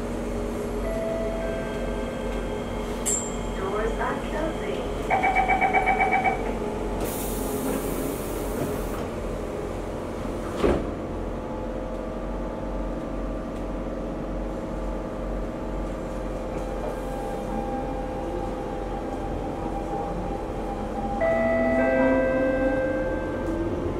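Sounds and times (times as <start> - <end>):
train carriage hum: 0.0 - 23.9
door-warning beeps: 5.1 - 6.5.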